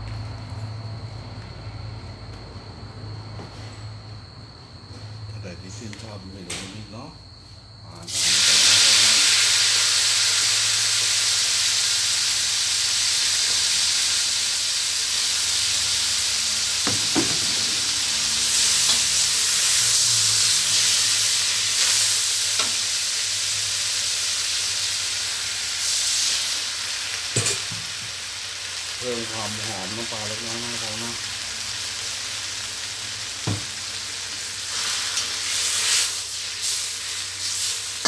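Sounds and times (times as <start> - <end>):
greens sizzling in hot oil: 8.0 - 38.0.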